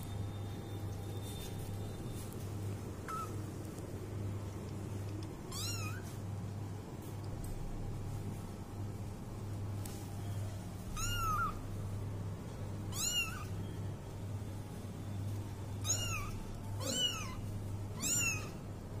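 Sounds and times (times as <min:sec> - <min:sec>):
steady low hum: 0:00.0 - 0:19.0
kitten meowing: 0:03.1 - 0:03.4, 0:05.5 - 0:06.1, 0:10.9 - 0:11.6, 0:12.9 - 0:13.6, 0:15.8 - 0:17.4, 0:18.0 - 0:18.6.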